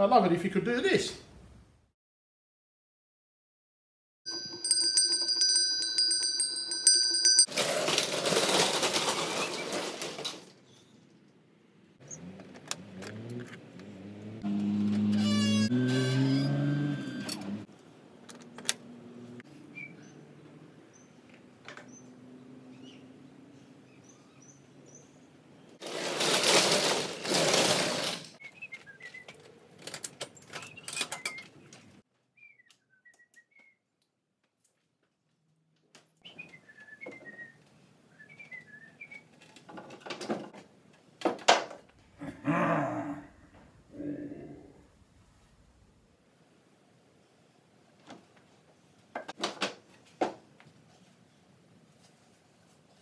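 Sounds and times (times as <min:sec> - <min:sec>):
small birds chirping: 0:19.6 - 0:25.8.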